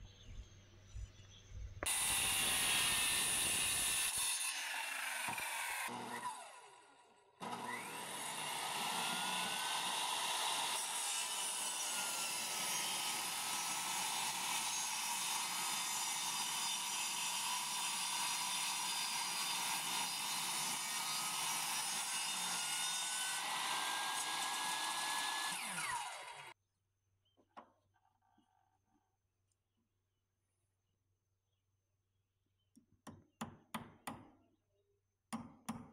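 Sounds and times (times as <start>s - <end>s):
table saw ripping wood: 7.4s - 26.5s.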